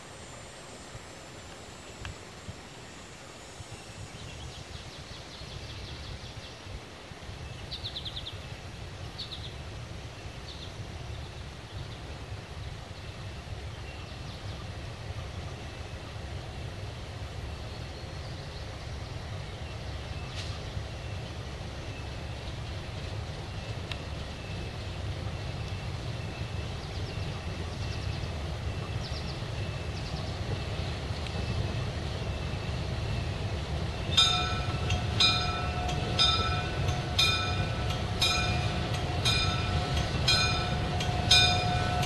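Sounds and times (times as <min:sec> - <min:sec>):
diesel locomotive engine rumbling: 0:00.0 - 0:42.0
birds chirping: 0:23.4 - 0:42.0.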